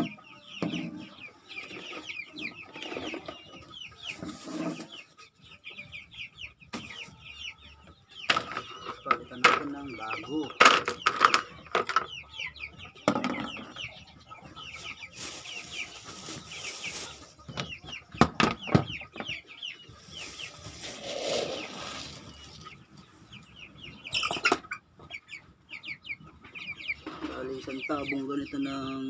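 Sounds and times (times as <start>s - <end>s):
chicks peeping: 0.0s - 29.0s
feeder rustling: 20.0s - 22.7s.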